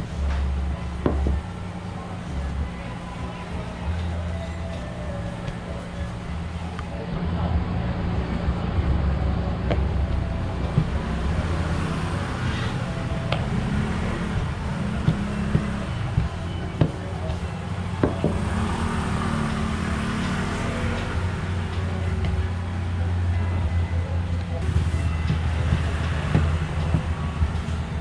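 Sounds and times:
low background rumble: 0.0s - 18.6s.

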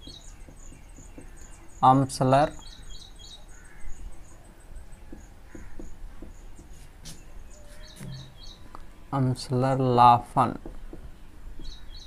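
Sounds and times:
marker on whiteboard: 5.1s - 8.3s
high-pitched chirping: 7.6s - 8.7s.

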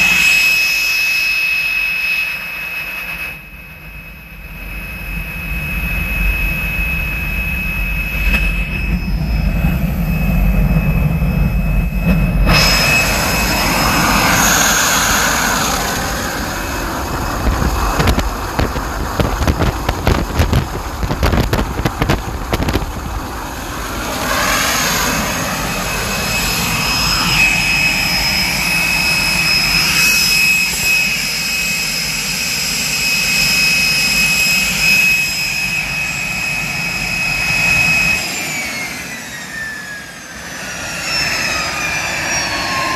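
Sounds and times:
jet engine roar with whine: 0.0s - 42.9s
exhaust blast buffeting microphone: 4.4s - 31.9s.

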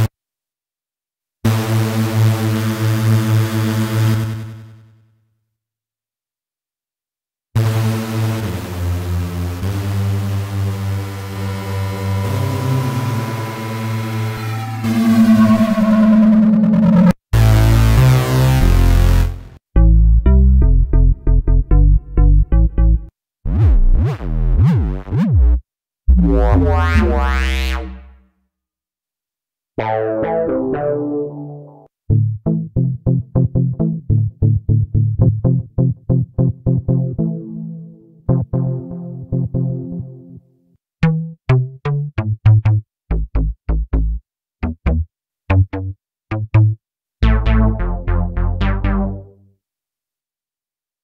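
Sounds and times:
synthesizer bass notes: 11.0s - 28.2s, 29.8s - 40.3s, 41.0s - 49.4s.

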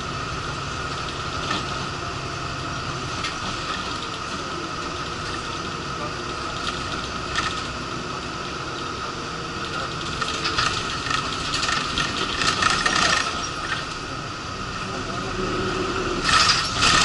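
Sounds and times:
bus engine and road noise: 0.0s - 17.0s
rattling and clattering: 0.8s - 2.0s, 2.8s - 7.8s, 9.6s - 14.0s, 16.2s - 17.0s.

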